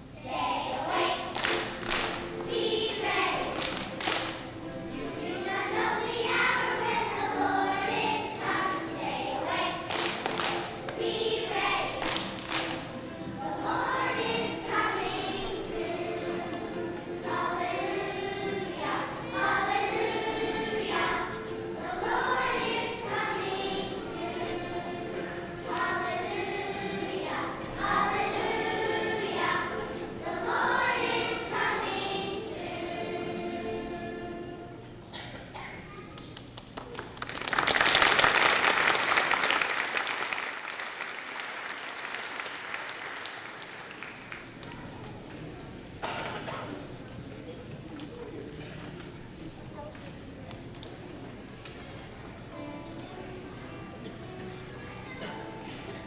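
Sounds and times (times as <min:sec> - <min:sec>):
children's choir singing: 0:00.0 - 0:35.7, 0:50.9 - 0:56.0.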